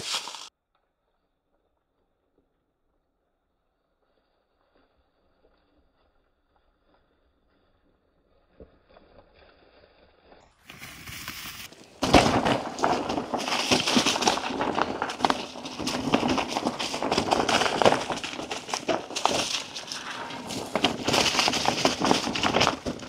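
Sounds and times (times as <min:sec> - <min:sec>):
bike tyres crunching over rocks: 0:00.0 - 0:00.5, 0:10.6 - 0:23.0.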